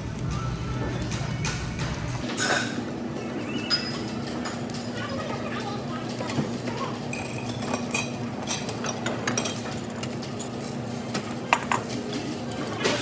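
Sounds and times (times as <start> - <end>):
cutlery and dishes clinking: 1.5 - 2.8, 3.7 - 4.9, 7.1 - 13.0.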